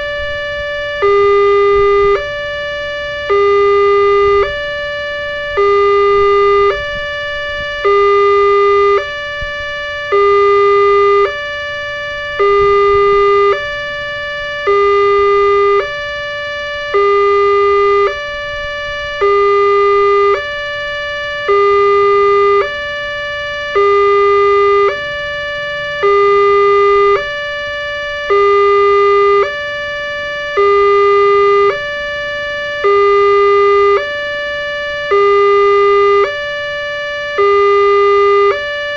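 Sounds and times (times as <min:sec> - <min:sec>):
two-tone crossing alarm: 0:00.0 - 0:38.9.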